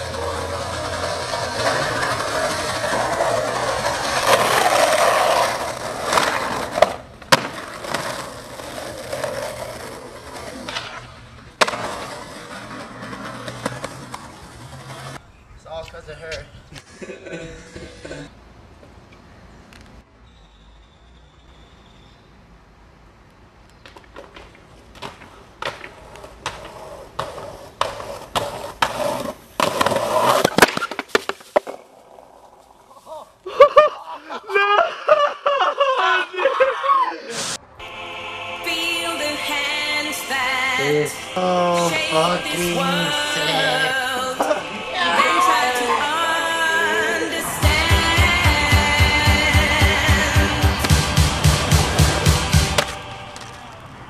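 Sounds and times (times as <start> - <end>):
skateboard clacking on ground: 0.0 - 15.2, 23.7 - 32.9, 51.8 - 54.0
skateboard wheels rolling on asphalt: 0.0 - 17.0, 21.9 - 35.6, 37.6 - 54.0
skateboard wheel knocks: 23.8 - 31.8.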